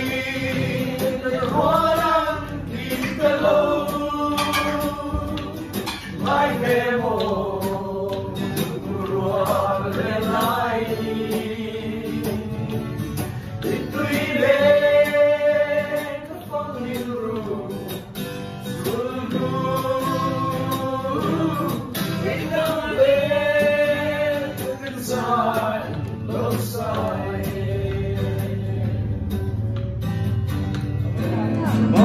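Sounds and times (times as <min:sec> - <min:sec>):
man singing into microphone: 0:00.0 - 0:12.5
group singing: 0:00.0 - 0:29.8, 0:31.1 - 0:32.0
acoustic guitar: 0:00.0 - 0:32.0.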